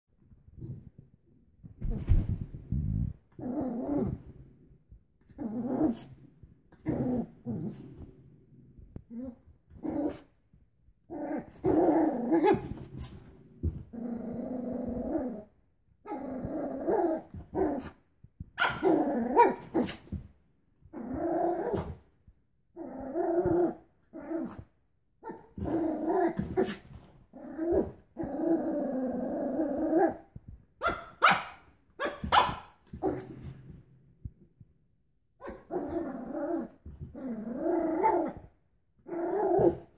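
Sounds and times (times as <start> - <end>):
puppy growling: 11.1 - 13.2, 13.8 - 18.0, 22.8 - 24.7, 25.3 - 30.3, 35.4 - 39.9
puppy barking: 18.6 - 19.6, 30.8 - 32.7.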